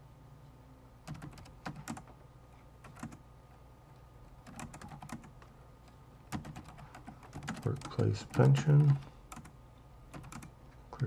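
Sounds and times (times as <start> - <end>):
faint steady hum: 0.0 - 11.0
keyboard typing: 1.0 - 2.2, 2.8 - 3.2, 4.4 - 5.5, 6.3 - 10.6.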